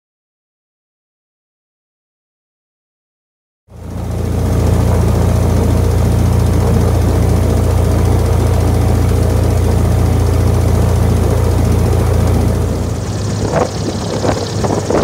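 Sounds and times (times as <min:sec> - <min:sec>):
boat engine droning: 0:03.7 - 0:15.0.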